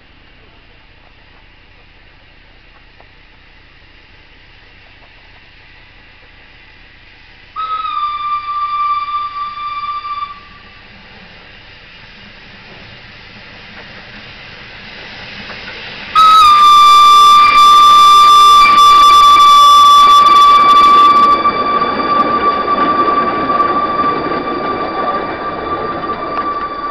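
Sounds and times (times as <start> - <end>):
train running noise: 0.0 - 26.9
steam whistle: 7.6 - 10.9, 16.1 - 26.9.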